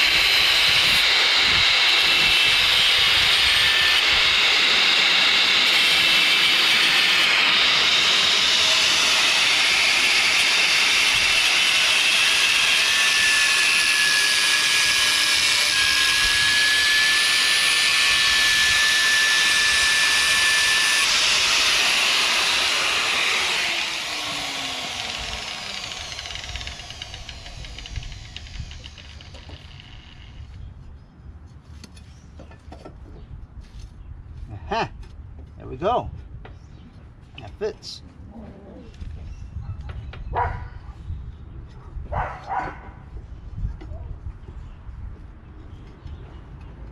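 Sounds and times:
angle grinder grinding metal: 0.0 - 30.5
grinder winding down whine: 0.0 - 30.5.

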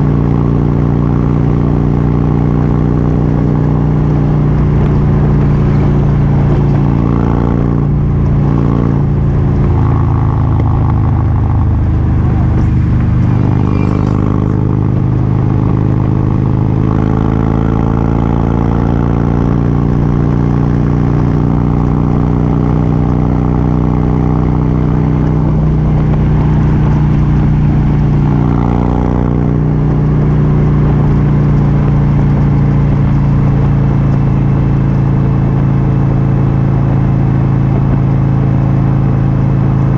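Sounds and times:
motorcycle engine cruising: 0.0 - 39.9
wind rush: 4.2 - 17.2.

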